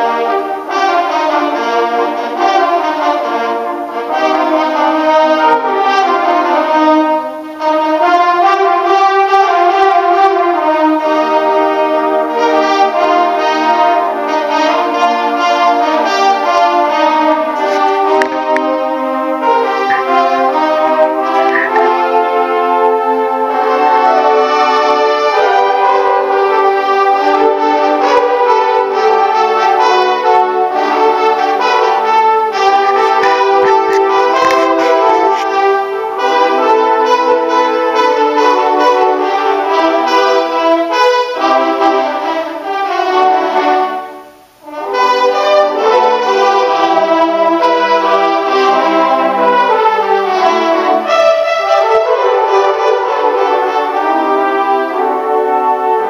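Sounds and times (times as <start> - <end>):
brass ensemble playing chords: 0.0 - 56.0.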